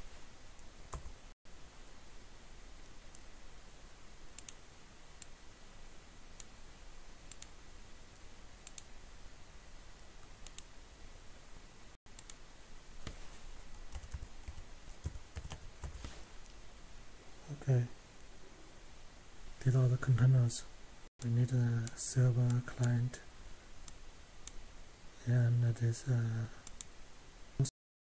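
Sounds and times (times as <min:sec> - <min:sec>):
computer keyboard typing: 0:13.8 - 0:16.0.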